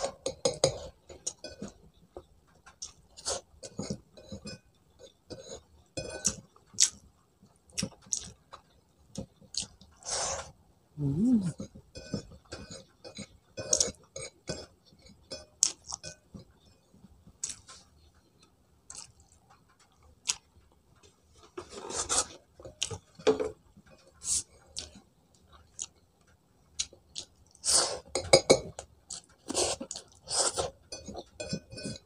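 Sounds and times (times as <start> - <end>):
person chewing: 18.9 - 20.5.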